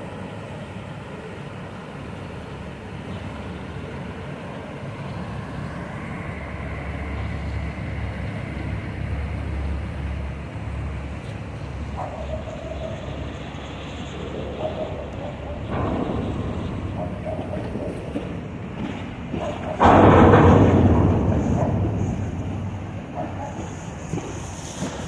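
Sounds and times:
boat engines rumbling: 0:00.0 - 0:25.0
water wash: 0:13.8 - 0:25.0.

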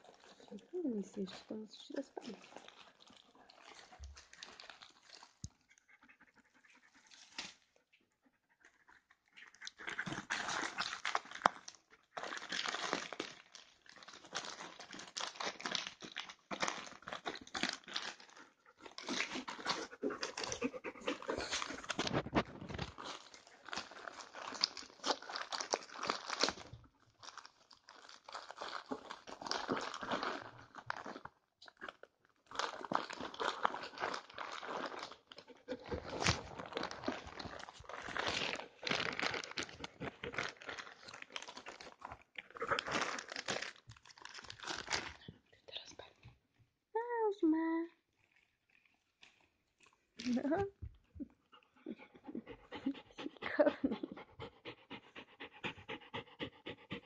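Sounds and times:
wrapping paper crinkling: 0:00.0 - 0:05.6, 0:09.4 - 0:45.8, 0:48.1 - 0:50.6
dog breathing: 0:19.5 - 0:22.4, 0:51.5 - 0:57.0.

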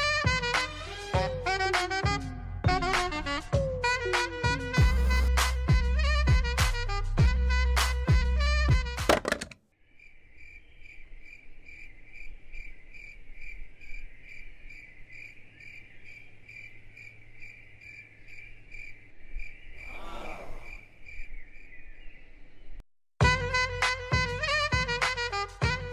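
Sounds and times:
crickets chirping: 0:09.8 - 0:22.1.

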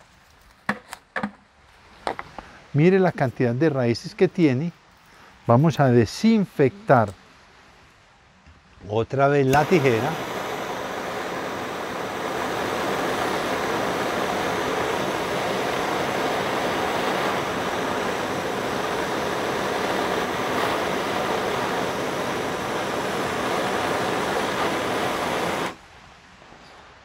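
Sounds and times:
gas torch hissing: 0:09.4 - 0:25.8.

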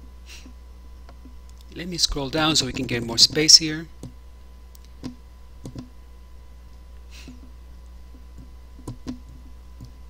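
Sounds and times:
steady low hum: 0:00.0 - 0:10.0
computer mouse clicks: 0:04.0 - 0:05.9.

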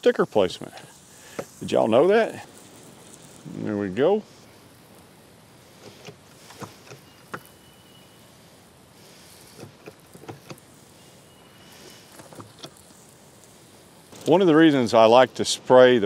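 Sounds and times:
low background noise: 0:00.0 - 0:16.0
sprayer hissing: 0:00.0 - 0:16.0
light clicks and crunches: 0:05.8 - 0:07.5, 0:11.7 - 0:14.8.

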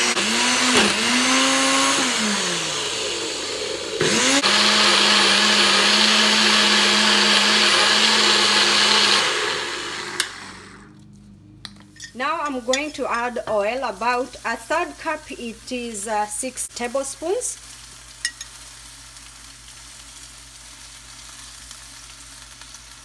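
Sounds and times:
blender motor blending: 0:00.0 - 0:11.0.

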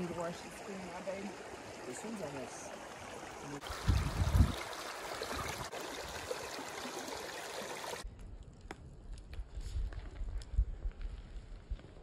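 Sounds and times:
stream rushing: 0:00.0 - 0:08.0.

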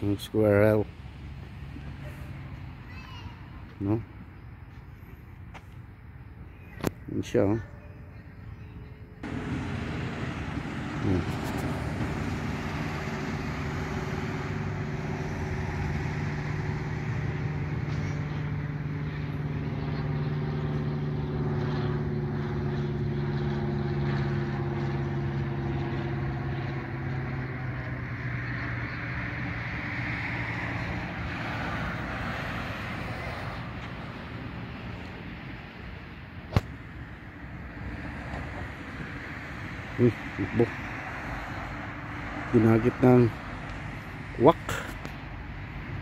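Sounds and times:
engine humming: 0:09.2 - 0:46.0.

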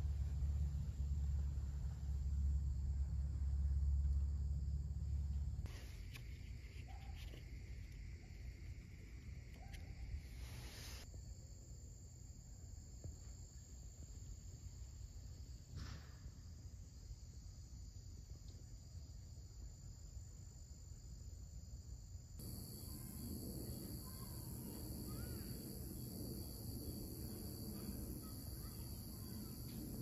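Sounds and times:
low background rumble: 0:00.0 - 0:10.2
night insects trilling: 0:16.6 - 0:30.0.

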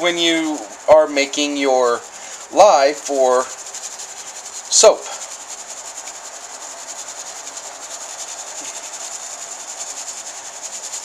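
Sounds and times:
ash sifting through mesh strainer: 0:00.0 - 0:11.0.

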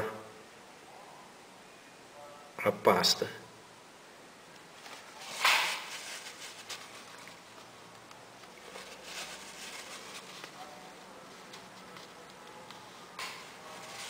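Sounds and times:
plastic sheet crinkling: 0:04.8 - 0:07.8, 0:08.4 - 0:14.0.

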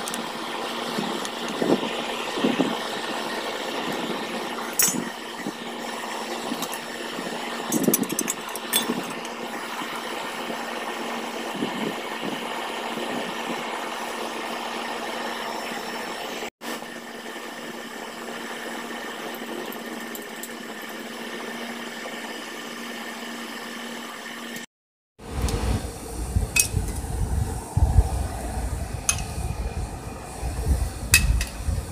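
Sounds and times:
motor-like hum: 0:00.0 - 0:31.9
rushing noise: 0:25.2 - 0:31.9.

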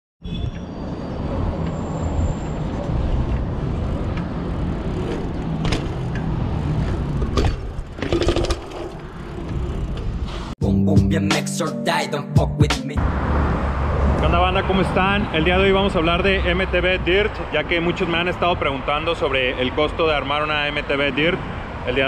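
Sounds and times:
bike rolling over concrete: 0:03.1 - 0:10.5.

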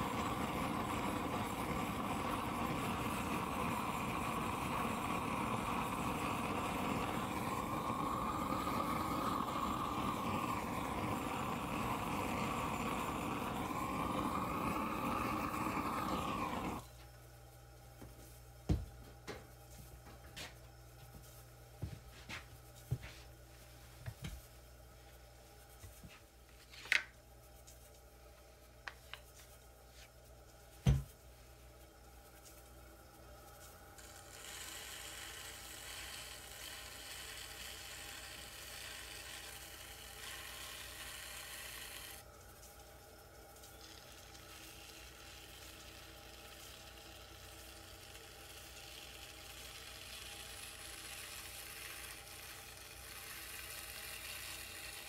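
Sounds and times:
gas torch flame rushing: 0:00.0 - 0:16.9
faint hum: 0:00.0 - 0:55.0.

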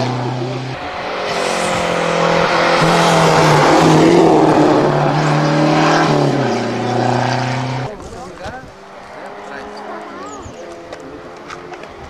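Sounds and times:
rally car driving past: 0:00.0 - 0:08.1.

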